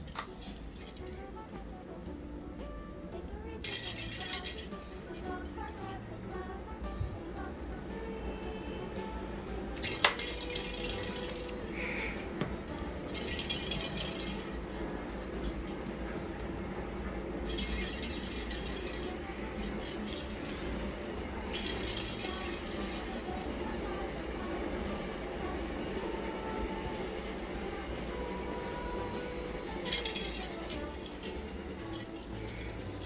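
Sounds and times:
bell ball rattling across floor: 0:00.0 - 0:01.7, 0:03.7 - 0:06.0, 0:09.8 - 0:11.8, 0:12.8 - 0:15.8, 0:17.5 - 0:20.8, 0:21.4 - 0:24.4, 0:29.9 - 0:33.0.

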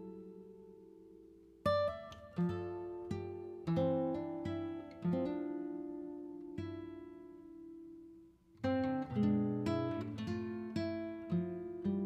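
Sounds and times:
acoustic guitar plucked notes: 0:00.0 - 0:12.0.

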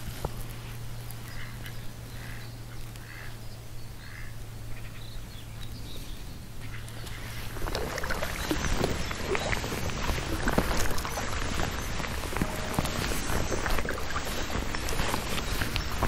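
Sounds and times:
steady low hum: 0:00.0 - 0:16.0
duck quacking: 0:03.0 - 0:03.4.

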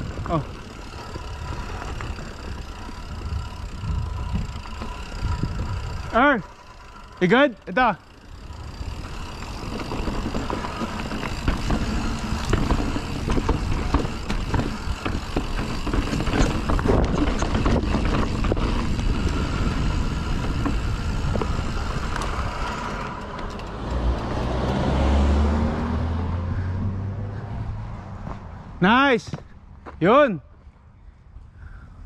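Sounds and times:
wind rumble on microphone: 0:00.0 - 0:06.2, 0:08.4 - 0:23.1
bike knocking and rattling: 0:00.0 - 0:24.8
bike tyres rolling over dirt: 0:00.0 - 0:24.9.

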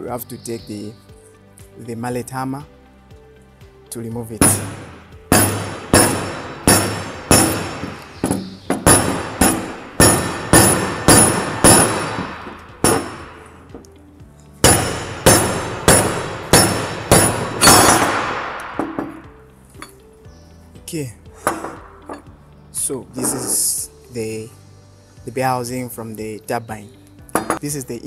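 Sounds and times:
rubber mallet striking metal: 0:04.4 - 0:13.9, 0:14.6 - 0:19.9, 0:21.4 - 0:22.3, 0:27.3 - 0:27.6.

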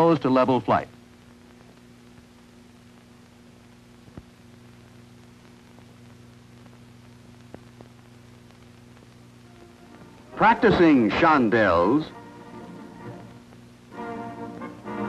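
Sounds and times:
narration: 0:00.0 - 0:01.0, 0:09.4 - 0:13.5
film soundtrack hum and hiss: 0:00.0 - 0:15.0
faint clicks: 0:01.5 - 0:09.3.

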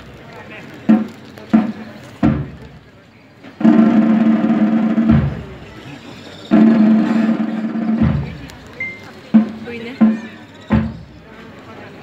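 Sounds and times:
drum rolls: 0:00.8 - 0:02.8, 0:03.6 - 0:05.8, 0:06.5 - 0:11.2.

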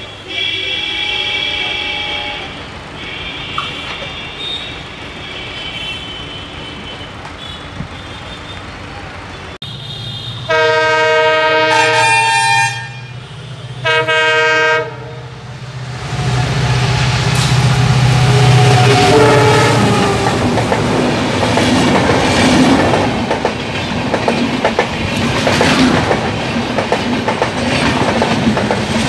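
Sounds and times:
multi-tone train horn: 0:00.0 - 0:08.6, 0:09.6 - 0:21.0
diesel locomotive engine hum: 0:00.0 - 0:29.0
train rumbling: 0:00.0 - 0:29.0.

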